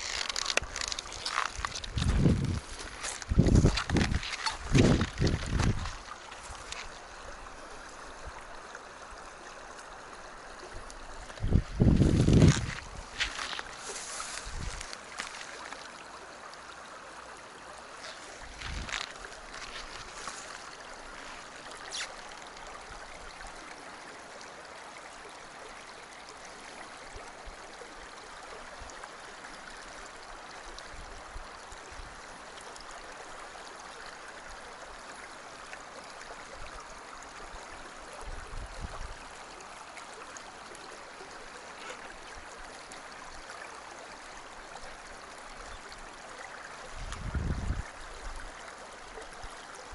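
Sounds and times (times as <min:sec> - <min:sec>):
stream running over stones: 0:00.0 - 0:49.9.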